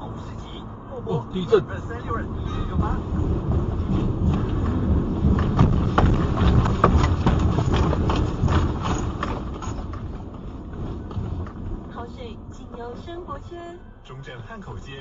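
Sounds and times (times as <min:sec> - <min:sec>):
heavy rumble inside moving car: 0:00.0 - 0:15.0
rapid irregular knocks and rattles: 0:02.8 - 0:12.0.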